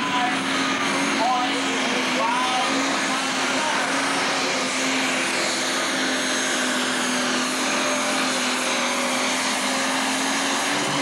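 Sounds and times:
diesel engine at full throttle: 0:00.0 - 0:11.0.

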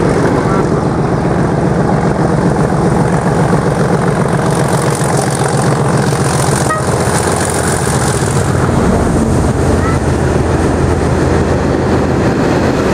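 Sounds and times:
diesel locomotive engine drone: 0:00.0 - 0:12.9.

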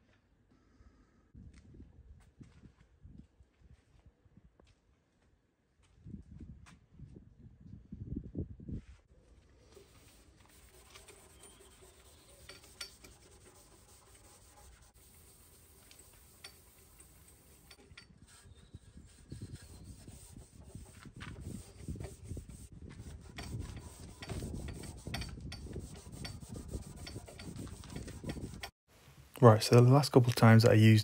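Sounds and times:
cloth rubbing on metal: 0:09.6 - 0:28.7.

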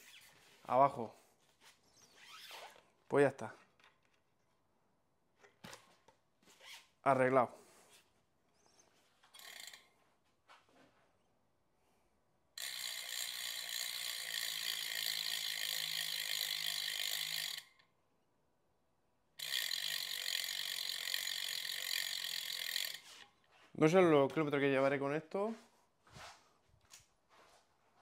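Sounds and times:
bicycle freehub ratcheting buzz: 0:09.4 - 0:09.9, 0:12.6 - 0:17.9, 0:19.4 - 0:23.3.

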